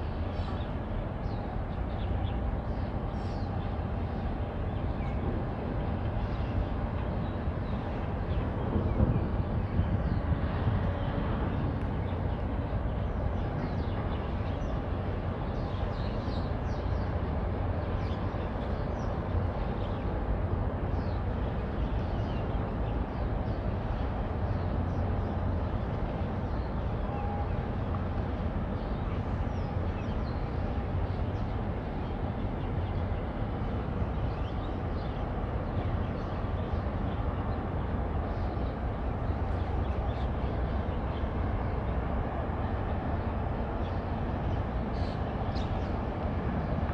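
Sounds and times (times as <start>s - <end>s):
ship engine drone: 22.4s - 46.9s.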